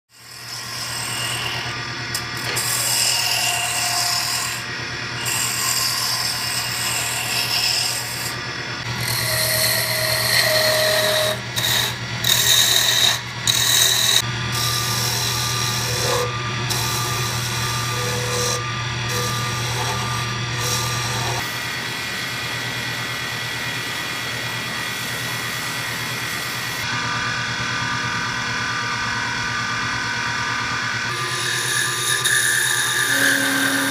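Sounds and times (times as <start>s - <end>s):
tools scraping spinning wood: 5.2s - 21.4s
lathe motor hum: 5.2s - 21.5s.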